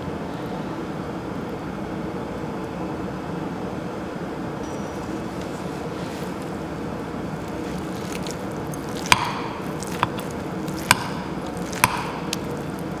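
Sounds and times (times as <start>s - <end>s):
food squishing: 5.5s - 13.0s.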